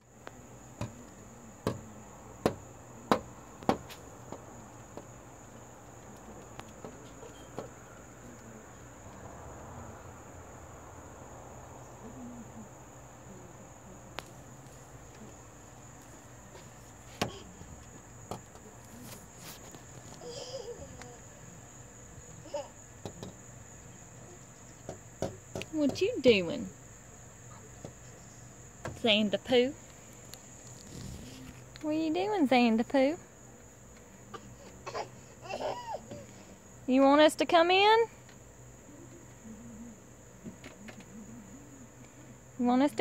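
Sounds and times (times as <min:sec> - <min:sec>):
crickets chirring: 0:00.0 - 0:43.0
taps on glass door: 0:00.8 - 0:05.1, 0:23.0 - 0:23.4, 0:24.8 - 0:26.1.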